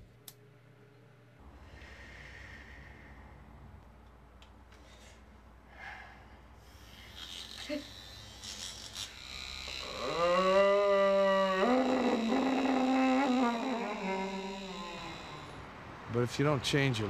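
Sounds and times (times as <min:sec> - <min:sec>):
vibrator motor buzzing: 0:07.0 - 0:15.7.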